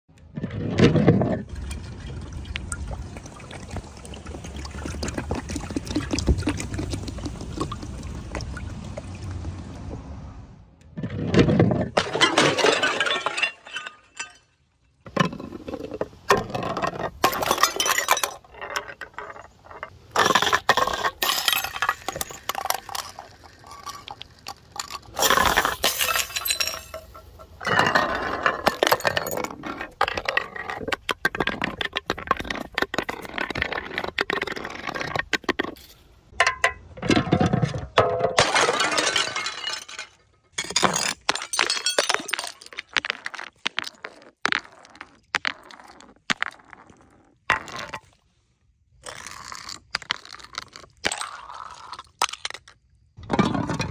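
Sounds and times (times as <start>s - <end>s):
glass jars clattering down steps: 11.2s - 34.4s, 36.4s - 44.0s
glass breaking: 12.0s - 14.6s, 21.1s - 28.0s, 38.0s - 43.0s.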